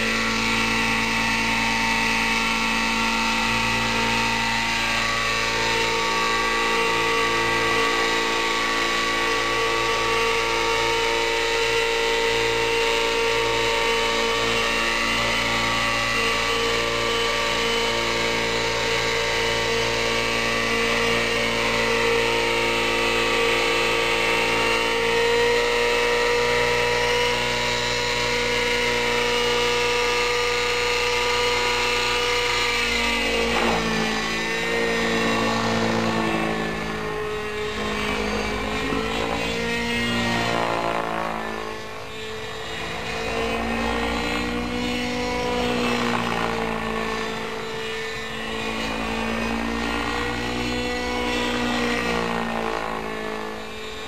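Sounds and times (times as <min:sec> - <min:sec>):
model helicopter engine whining: 0:00.0 - 0:54.0.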